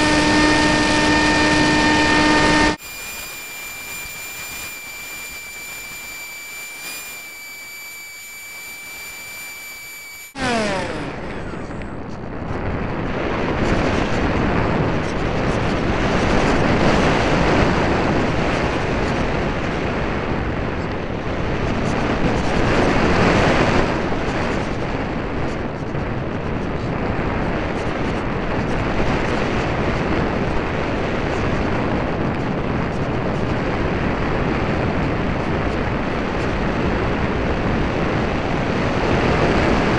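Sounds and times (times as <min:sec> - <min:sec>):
rushing air and motor: 0:00.0 - 0:12.0
high-pitched motor whine: 0:00.0 - 0:12.3.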